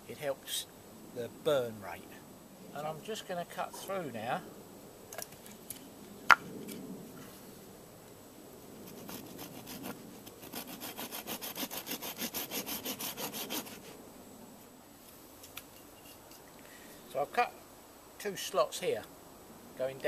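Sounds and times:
hand saw cutting wood: 0:08.9 - 0:14.0.

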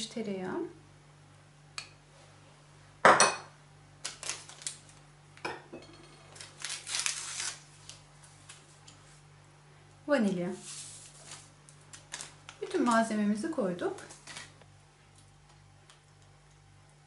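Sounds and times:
paper sachet tearing: 0:04.0 - 0:05.0, 0:06.4 - 0:08.0, 0:10.6 - 0:13.0.

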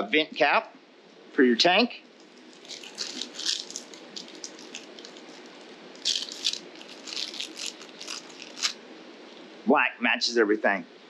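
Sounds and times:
plastic bag crinkling: 0:02.1 - 0:08.8.

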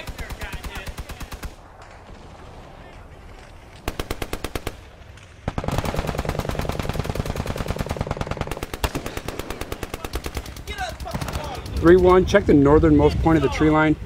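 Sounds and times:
machine-gun fire: 0:03.8 - 0:12.1.

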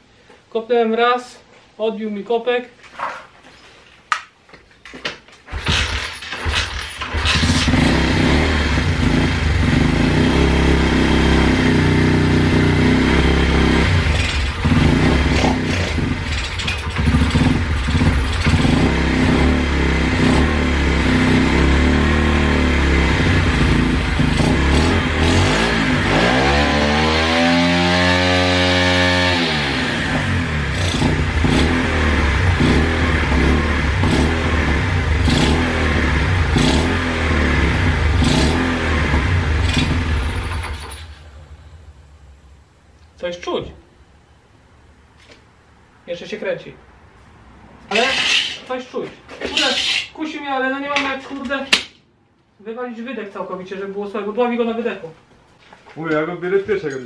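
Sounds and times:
motorbike engine revving: 0:05.5 - 0:41.2.

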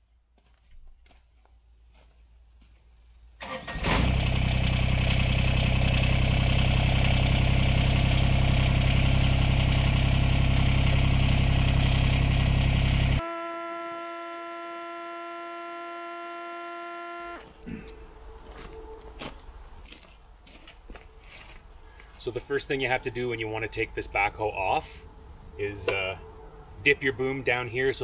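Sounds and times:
diesel engine cranking and running: 0:03.4 - 0:17.7.

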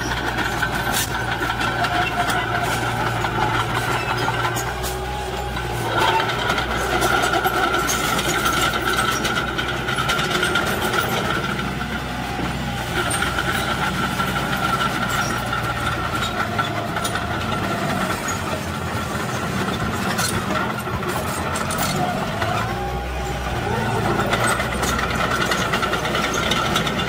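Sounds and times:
diesel engines running: 0:00.0 - 0:27.0.

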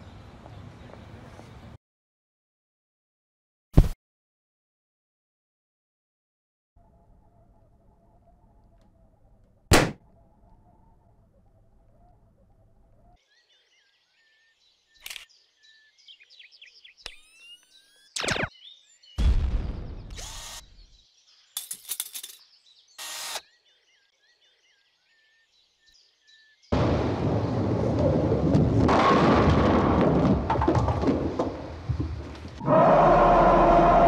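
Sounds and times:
birds chirping: 0:00.0 - 0:01.8, 0:06.9 - 0:26.7
harsh mechanical noises: 0:20.1 - 0:20.8.

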